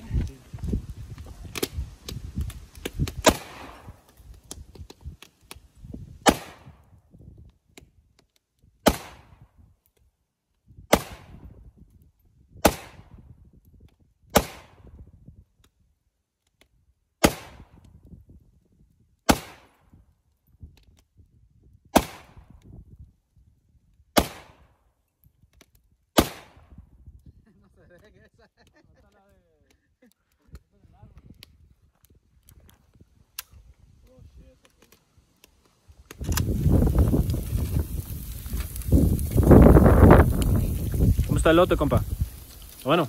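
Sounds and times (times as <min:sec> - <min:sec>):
rifle shots with echo: 0:03.2 - 0:04.0, 0:24.2 - 0:24.6, 0:26.2 - 0:26.7.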